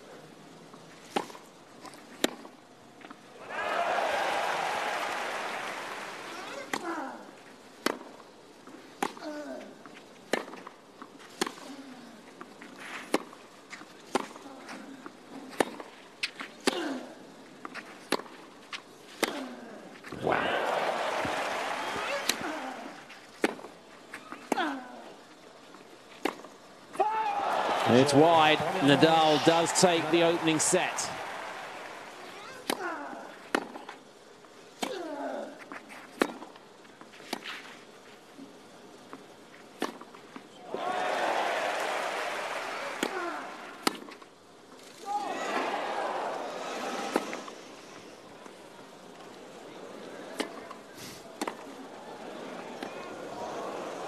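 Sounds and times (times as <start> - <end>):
crowd cheering and applause: 3.4 - 6.3, 20.2 - 22.5, 27.0 - 32.4, 40.7 - 43.8, 45.3 - 47.1.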